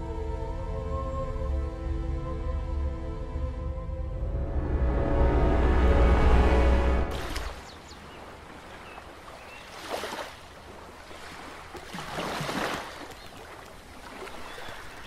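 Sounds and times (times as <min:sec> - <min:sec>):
water splashing: 0:07.0 - 0:15.0
water lapping at wooden jetty: 0:07.1 - 0:15.0.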